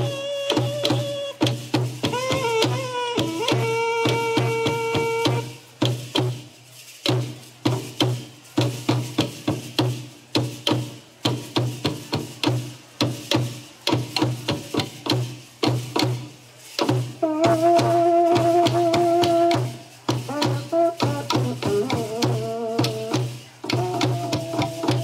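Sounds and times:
held wind instrument note: 0:00.0 - 0:05.7, 0:17.2 - 0:25.0
drum beaten in dance rhythm: 0:00.0 - 0:25.0.

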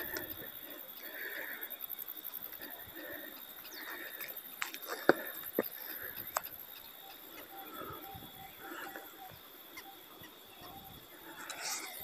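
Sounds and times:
footsteps on dirt trail: 0:02.5 - 0:09.9.

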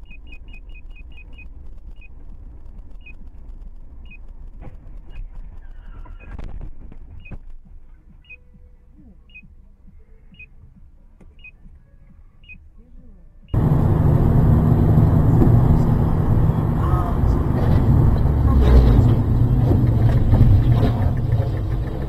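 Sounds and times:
car driving rumble: 0:00.0 - 0:22.0
car collision crunch: 0:00.4 - 0:08.3, 0:13.6 - 0:21.9.

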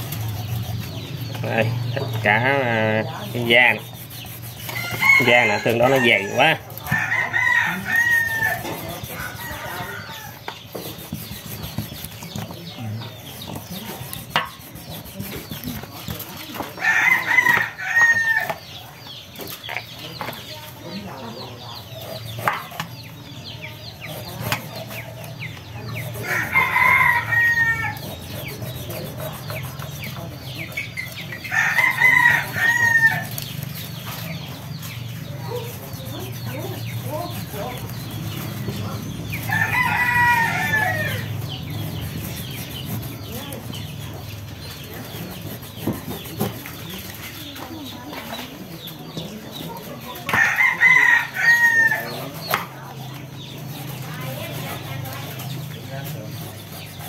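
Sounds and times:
rooster crowing: 0:04.8 - 0:10.4, 0:26.2 - 0:28.1, 0:31.5 - 0:33.3, 0:39.5 - 0:41.4.

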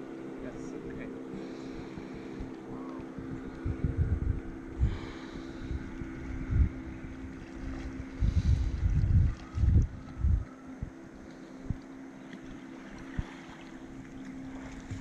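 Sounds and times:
boat motor running: 0:00.0 - 0:15.0
wind on microphone: 0:00.8 - 0:15.0.

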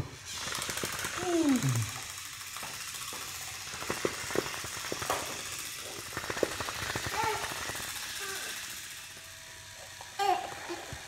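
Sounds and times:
toy motor rattling whirr: 0:00.0 - 0:11.0
toy clicking on wooden floor: 0:00.3 - 0:11.0.

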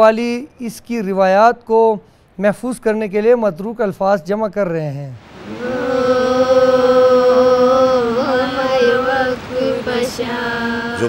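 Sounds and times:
women singing folk song: 0:05.4 - 0:11.0.

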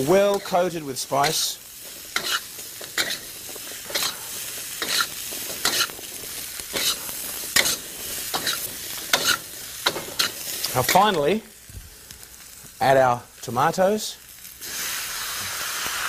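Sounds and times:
utensil scraping in a wok: 0:00.0 - 0:11.2
zucchini sizzling in a wok: 0:00.0 - 0:16.0.

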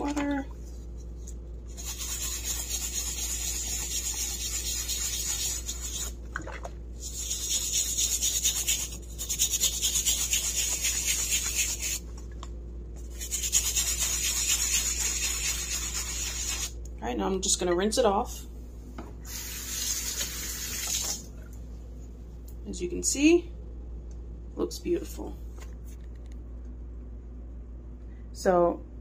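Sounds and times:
brush scrubbing wet cork: 0:00.3 - 0:06.2, 0:07.0 - 0:12.1, 0:13.0 - 0:16.8.

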